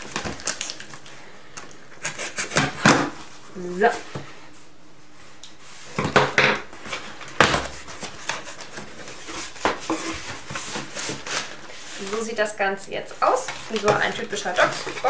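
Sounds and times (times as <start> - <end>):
packaging rustling: 0.0 - 3.3, 6.8 - 12.4, 13.3 - 15.0.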